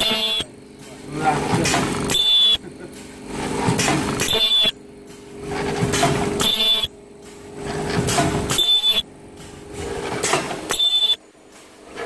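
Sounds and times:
shrill ultrasonic welding bursts: 0.0 - 0.6, 2.1 - 2.7, 4.2 - 4.9, 6.4 - 7.0, 8.5 - 9.2, 10.7 - 11.4
steady machine hum: 0.0 - 12.0.

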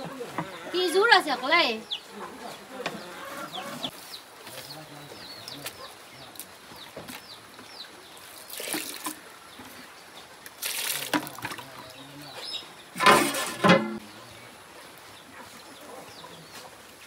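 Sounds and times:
hens clucking faintly: 0.0 - 8.0, 11.4 - 17.0
water splashing into bucket: 8.3 - 9.3, 10.4 - 12.0.

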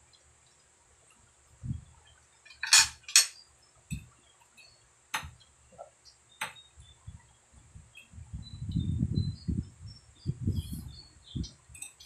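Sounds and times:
metal fork clinking on glass plate: 2.5 - 3.4.

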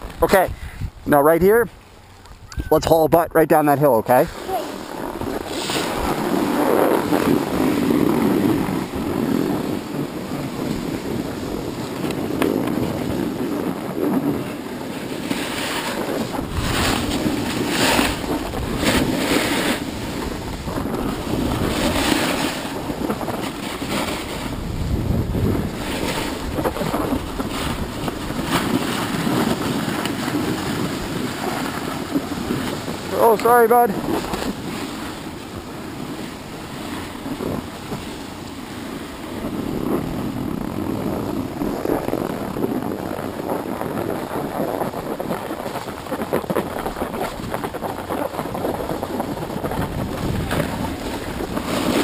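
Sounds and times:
wind on microphone: 0.0 - 52.0
snowboard scraping over snow: 4.0 - 52.0.

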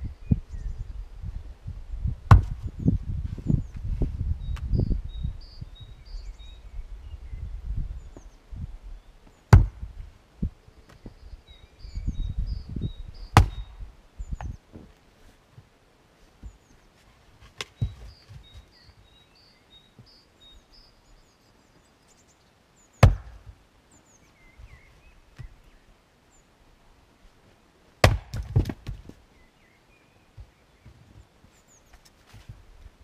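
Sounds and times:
axe splitting firewood: 2.3 - 2.7, 9.5 - 9.9, 13.4 - 13.7, 23.0 - 23.6, 28.0 - 29.2
smaller wood knocks: 2.3 - 2.7, 9.5 - 9.8, 23.0 - 23.6, 28.0 - 29.2
faint bird chirps: 17.7 - 23.0.

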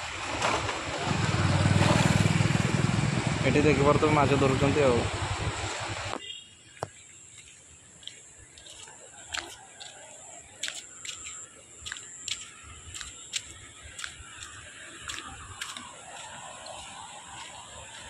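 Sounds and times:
footsteps on wet dirt: 6.2 - 18.0.

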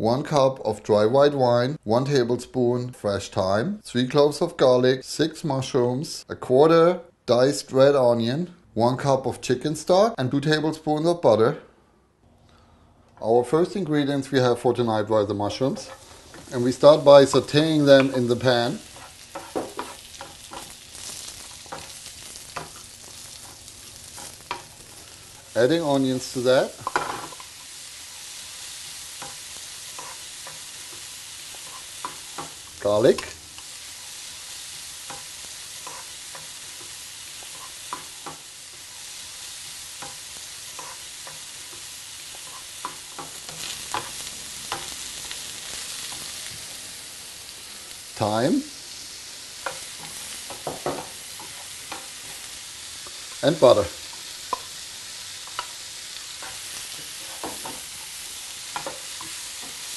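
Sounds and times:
mushrooms sizzling in a pan: 13.8 - 59.9
wooden spoon knocking on pan: 50.5 - 51.1.

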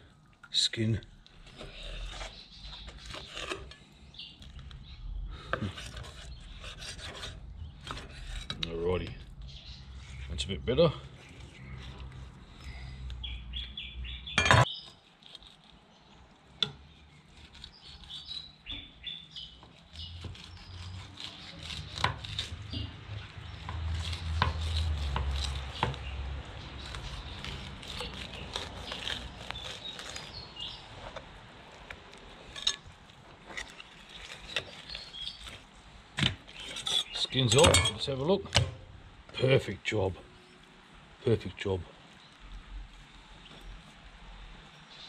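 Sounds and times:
knife scraping and slicing fish: 1.4 - 3.9, 5.5 - 8.6, 14.6 - 15.8, 19.7 - 35.6.

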